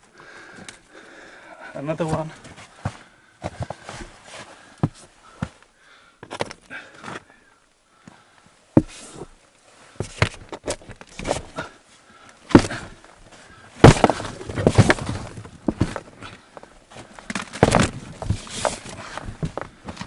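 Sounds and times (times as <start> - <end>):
rotten wooden boards cracking: 8.2 - 20.0
clatter of cracking wood: 13.8 - 20.0.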